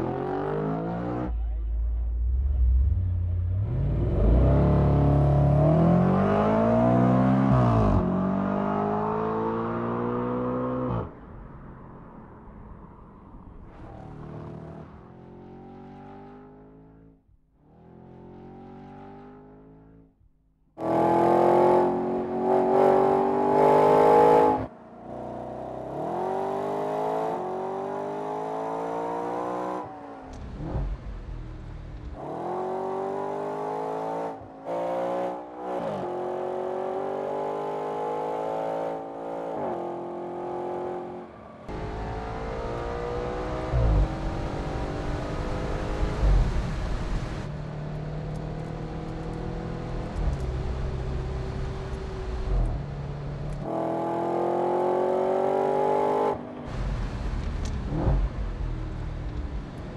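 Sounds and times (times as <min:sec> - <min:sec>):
car engine accelerating: 0:00.0 - 0:17.1, 0:20.8 - 0:59.9
low rumble: 0:01.3 - 0:04.5.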